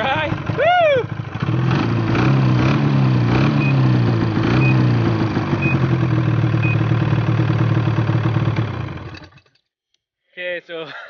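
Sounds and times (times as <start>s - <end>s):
snowmobile engine idling: 0.0s - 1.5s, 3.6s - 9.2s.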